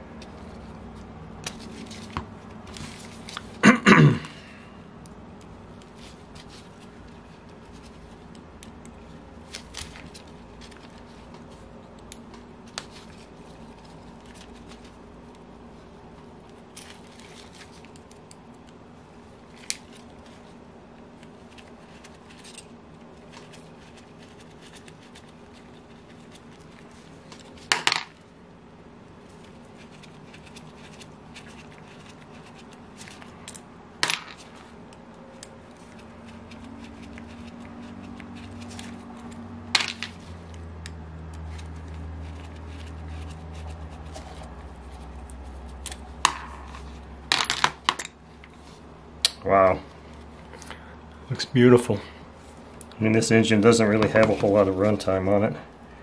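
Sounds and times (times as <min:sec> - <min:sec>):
metal parts and tools clattering: 0:38.6 - 0:40.2, 0:45.8 - 0:48.2.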